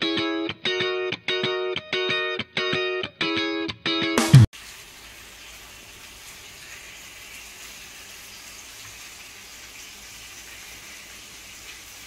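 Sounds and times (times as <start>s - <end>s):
food sizzling on hot plate: 4.6s - 12.0s.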